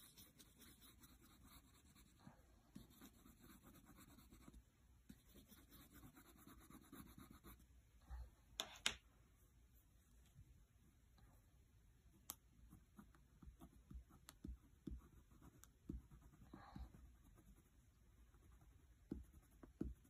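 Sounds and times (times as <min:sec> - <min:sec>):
crayon scribbling on paper: 0:00.0 - 0:02.2, 0:02.8 - 0:07.6.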